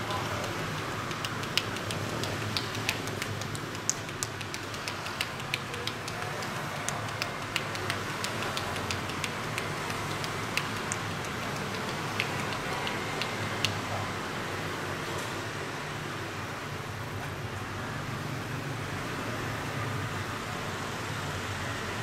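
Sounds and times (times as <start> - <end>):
hands patting skin: 0.0 - 13.8
street background noise: 0.0 - 22.0.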